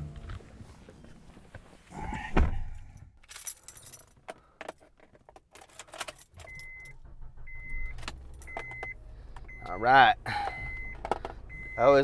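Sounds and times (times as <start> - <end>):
car keys jangling: 2.9 - 9.0
truck warning chime beeping: 6.4 - 12.0.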